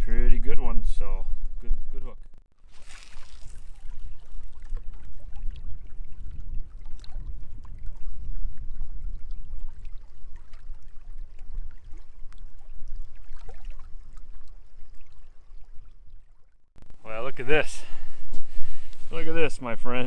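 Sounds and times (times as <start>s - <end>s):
waves lapping against rocks: 2.6s - 16.6s
wind buffeting the microphone: 3.5s - 15.0s, 17.2s - 20.0s.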